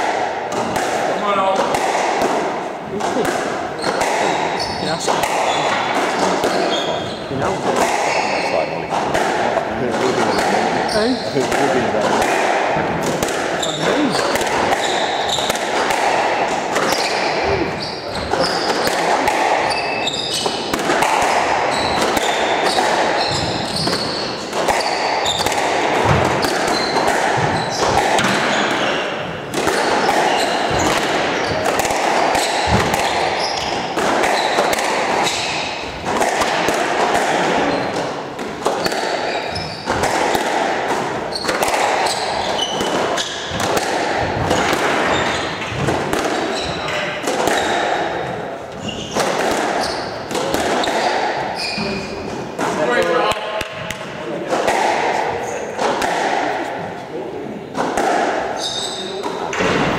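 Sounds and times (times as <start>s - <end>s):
squash ball knocking: 0.0s - 48.4s, 49.0s - 57.0s, 57.7s - 58.6s
shoes squeaking on court floor: 3.8s - 7.3s, 8.0s - 9.0s, 10.0s - 11.7s, 13.4s - 15.6s, 16.6s - 36.3s, 37.6s - 40.1s, 41.2s - 54.1s, 58.5s - 59.7s.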